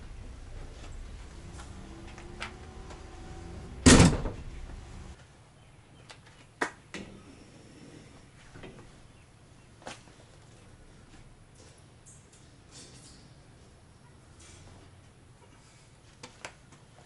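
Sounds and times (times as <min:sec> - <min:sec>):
spare wheel carrier clunking shut: 0:03.7 - 0:04.8.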